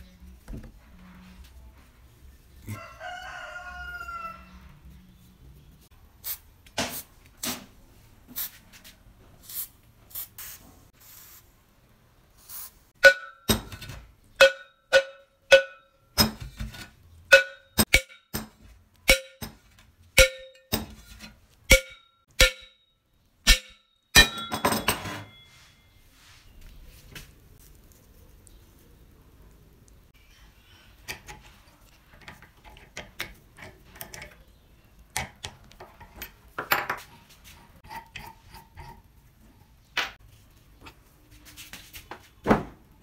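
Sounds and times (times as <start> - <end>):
hammer striking metal: 13.0 - 16.6, 17.3 - 21.0, 21.7 - 25.5.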